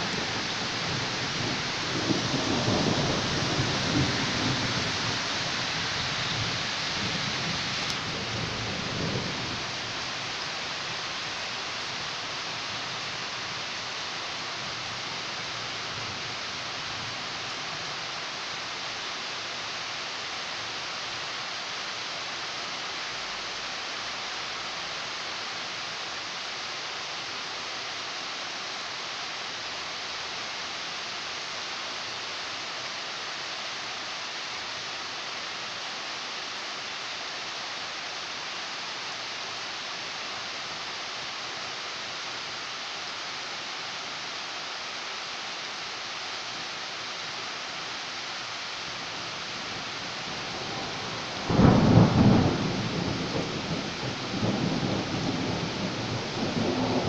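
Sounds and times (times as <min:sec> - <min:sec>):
rain falling: 0:00.0 - 0:57.0
thunderclap rumbling: 0:50.6 - 0:57.0.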